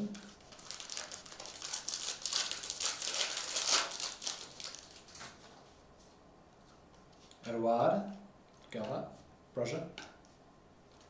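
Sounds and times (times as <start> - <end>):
foil wrapper tearing and crinkling: 0.2 - 5.4.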